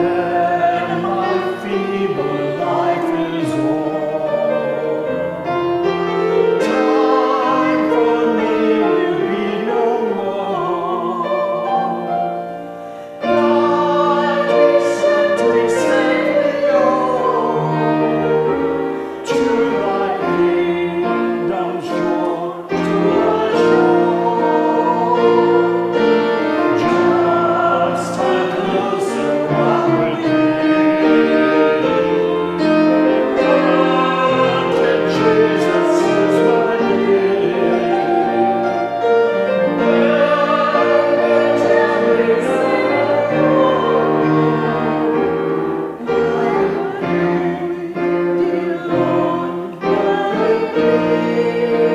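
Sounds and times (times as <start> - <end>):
grand piano: 0.0 - 51.9
woman and man singing duet: 19.2 - 32.0, 33.0 - 38.8, 39.8 - 45.3, 46.0 - 51.9.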